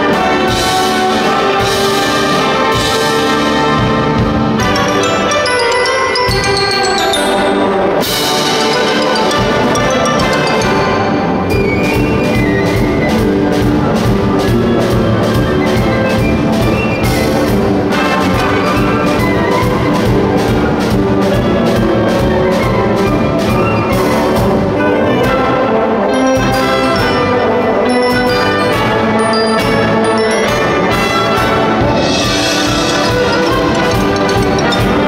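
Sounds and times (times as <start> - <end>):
wind band brass and saxophones: 0.0 - 35.0
drum kit beat: 29.6 - 35.0.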